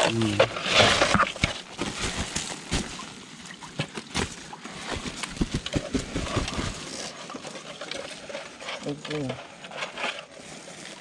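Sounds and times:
plastic sack rustling and crackling: 0.1 - 11.0.

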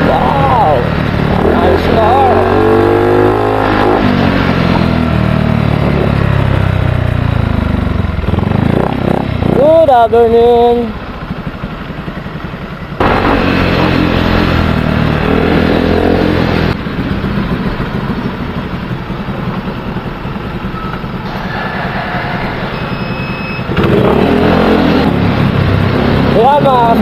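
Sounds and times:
motorcycle engine accelerating: 0.0 - 27.0
brief high tone: 20.7 - 23.7.

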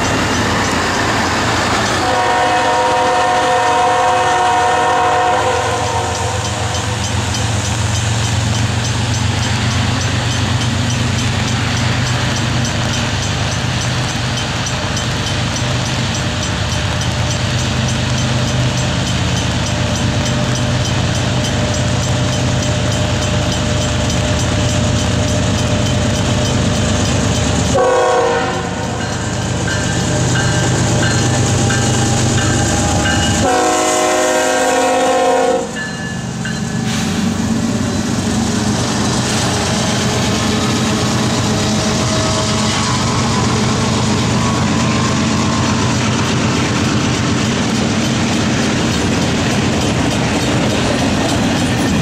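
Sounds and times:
train horn blasts: 1.8 - 7.0, 27.7 - 29.1, 32.8 - 35.8.

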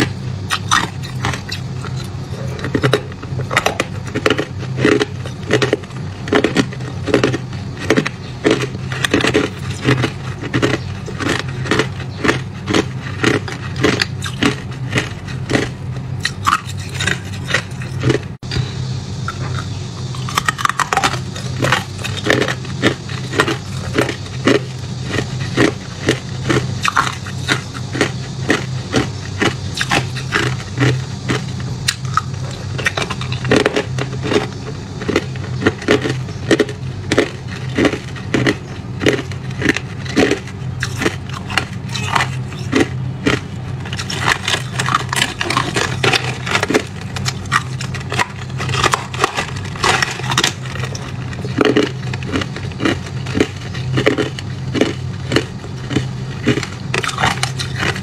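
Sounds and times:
steady low hum: 0.0 - 58.0
ice being crunched: 37.5 - 58.0.

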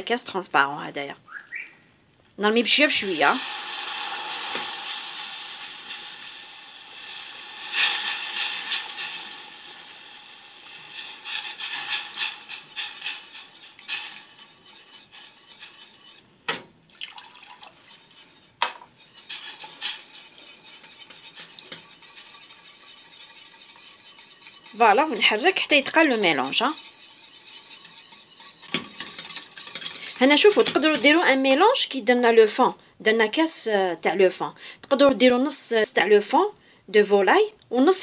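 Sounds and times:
liquid hissing in hot pan: 2.7 - 16.2, 17.0 - 31.2
metal utensil scraping saucepan: 2.7 - 16.6, 17.6 - 31.6
utensil clinking against pan: 18.6 - 31.2.

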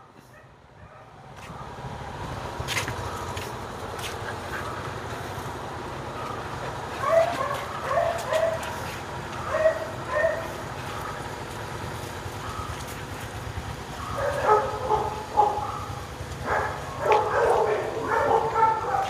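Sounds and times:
dog yipping: 7.0 - 8.8, 9.4 - 10.6, 14.0 - 19.0.

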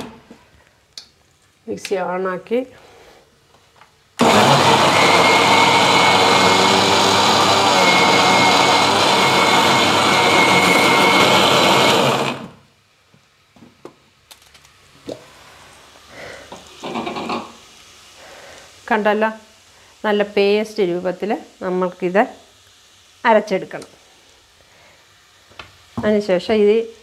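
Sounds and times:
mixer grinder motor whining: 4.2 - 12.6.

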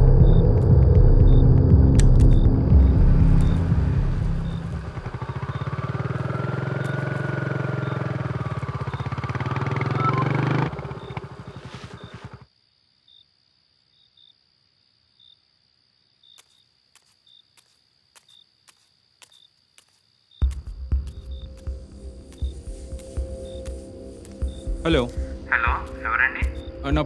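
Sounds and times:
motorcycle engine running: 0.0 - 12.4.

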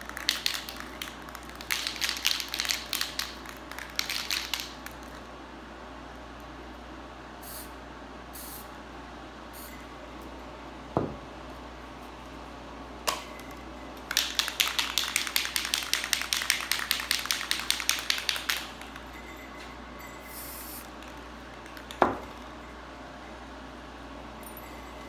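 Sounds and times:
spray can mixing ball rattling: 0.0 - 5.2, 14.0 - 19.2.

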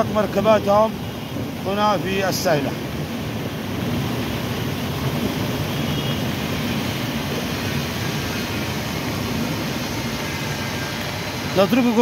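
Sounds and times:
floodwater rushing down street: 0.0 - 12.0
vehicles wading through water: 0.0 - 12.0.

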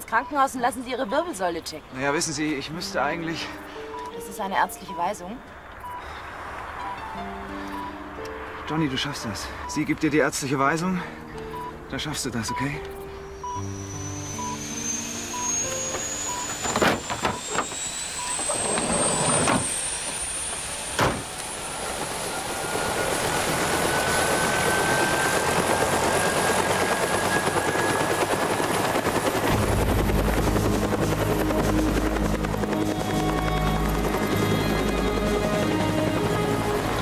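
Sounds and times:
turbine whine: 12.5 - 37.0
helicopter running: 13.4 - 37.0.

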